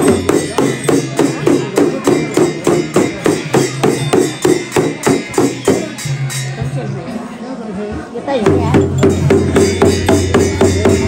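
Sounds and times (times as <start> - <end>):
frame drum beaten steadily: 0.0 - 6.2, 8.4 - 11.0.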